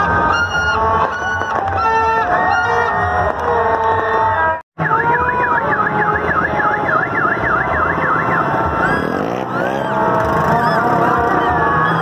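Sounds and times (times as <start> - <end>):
warbling siren-like tone: 4.8 - 12.0.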